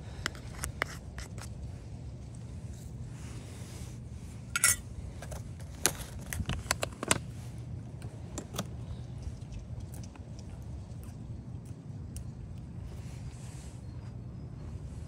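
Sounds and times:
spoon and containers clinking: 4.5s - 4.9s.

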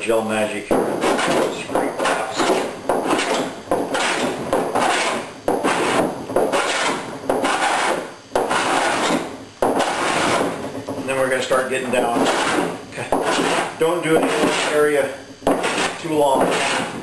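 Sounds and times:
hand plane shaving wood: 0.8s - 17.0s.

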